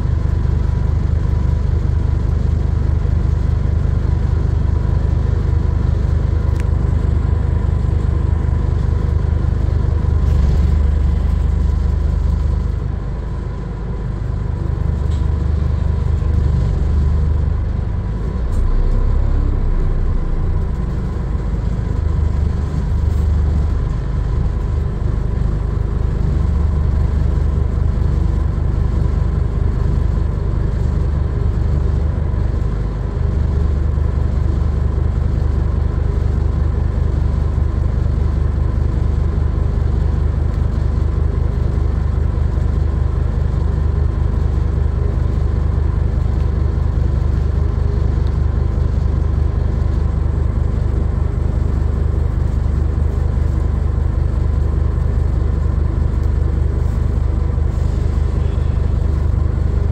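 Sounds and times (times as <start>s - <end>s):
bus diesel engine rumble: 0.0s - 59.9s.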